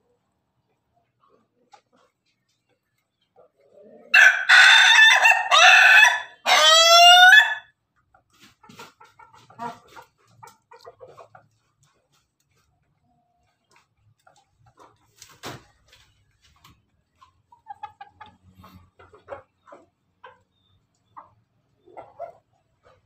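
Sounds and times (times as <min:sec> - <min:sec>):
rooster crowing: 0:04.1 - 0:07.7.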